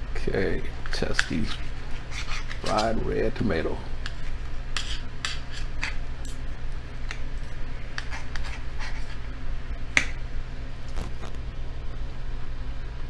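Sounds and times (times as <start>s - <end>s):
cutlery scraping ceramic plate: 0.9s - 3.0s, 4.8s - 6.4s, 8.0s - 9.2s.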